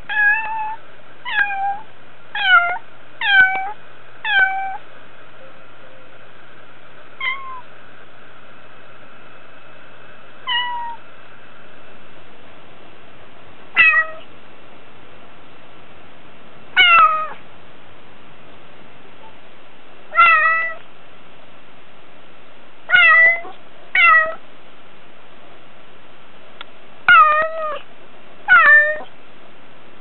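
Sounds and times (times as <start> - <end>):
cat meowing: 0.1 - 4.8, 7.2 - 7.7, 10.5 - 11.0, 13.8 - 14.3, 16.8 - 17.4, 20.1 - 20.8, 22.9 - 24.4, 27.1 - 27.8, 28.5 - 29.1.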